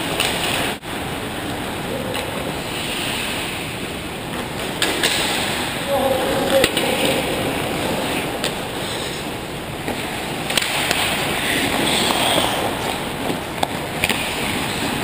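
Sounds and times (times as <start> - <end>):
hockey sticks and puck clacking: 0.0 - 0.8, 4.3 - 5.8, 6.4 - 15.0
skate blades hissing on ice: 2.6 - 3.7.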